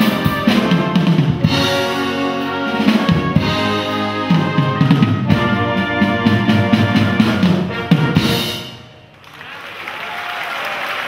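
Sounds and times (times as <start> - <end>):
wind band playing: 0.0 - 9.2
audience applause: 9.1 - 11.0.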